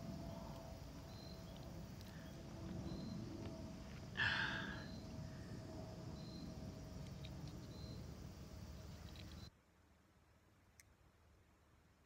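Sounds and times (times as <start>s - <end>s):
faint high chirp: 0.2s - 3.4s, 4.5s - 5.2s, 6.2s - 8.1s, 8.8s - 9.6s.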